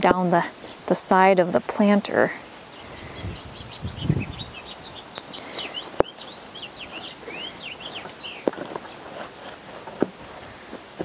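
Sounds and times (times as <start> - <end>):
birds chirping: 0.0 - 9.2
hands working potting soil: 6.8 - 11.0.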